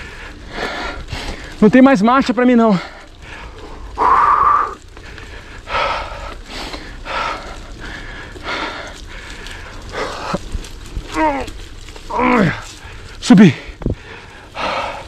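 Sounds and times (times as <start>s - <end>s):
person breathing hard: 0.0s - 1.6s, 2.8s - 10.6s, 12.4s - 15.0s.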